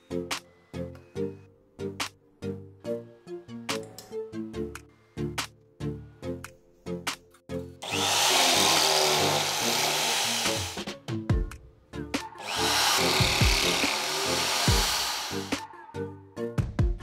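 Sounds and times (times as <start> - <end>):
background music: 0.0 - 17.0
drill press drilling metal: 7.8 - 10.8, 12.4 - 15.6.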